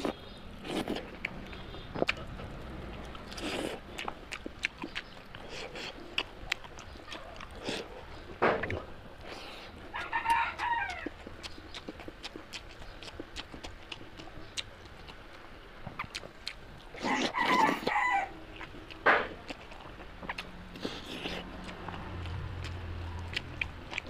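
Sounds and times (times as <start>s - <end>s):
person eating by hand: 0.0s - 24.0s
chicken calling: 9.8s - 11.8s, 17.0s - 18.8s.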